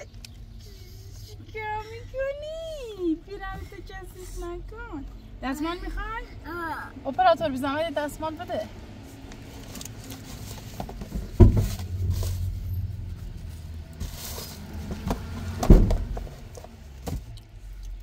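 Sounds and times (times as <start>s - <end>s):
dull thumps: 10.7s - 12.6s
low rumble: 11.3s - 16.3s.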